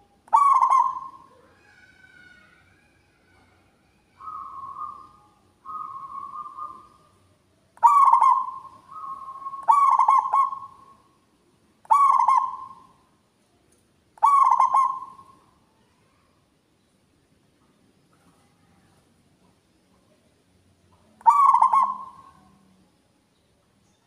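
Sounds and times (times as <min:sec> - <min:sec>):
dove cooing: 0:00.0 - 0:01.5, 0:04.2 - 0:07.1, 0:07.8 - 0:11.0, 0:11.9 - 0:13.0, 0:14.2 - 0:15.4, 0:21.2 - 0:22.6.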